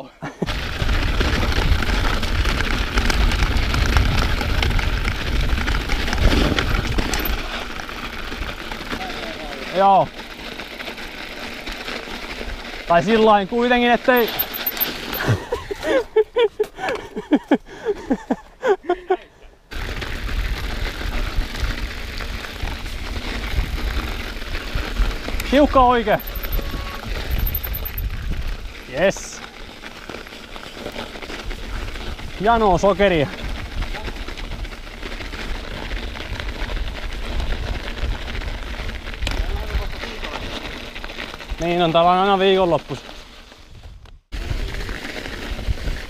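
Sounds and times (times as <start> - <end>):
bike tyres crunching over snow: 0.4 - 17.4, 19.7 - 46.0
wind rumble on microphone: 0.5 - 7.6, 19.8 - 28.8, 31.3 - 40.6, 43.6 - 46.0.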